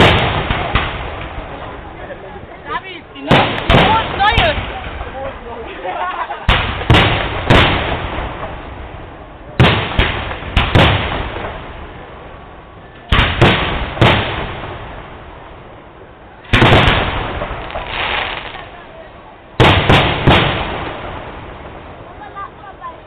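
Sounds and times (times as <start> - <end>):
rolling rumble: 0.0 - 23.0
firework shells bursting: 6.4 - 9.0, 16.4 - 18.7, 19.6 - 21.7.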